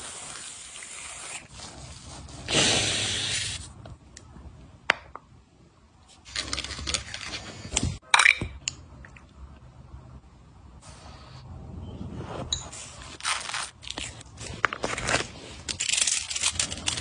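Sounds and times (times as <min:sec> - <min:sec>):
spray hiss: 0:02.5 - 0:03.7
crinkly rustling: 0:12.8 - 0:17.0.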